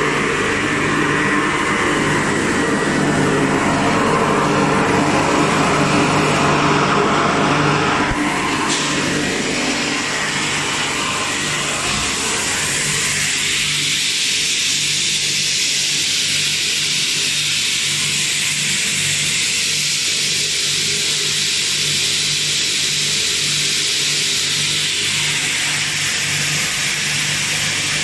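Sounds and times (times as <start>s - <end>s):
low hum: 0.0s - 13.6s
machine drone with hiss: 0.0s - 28.0s.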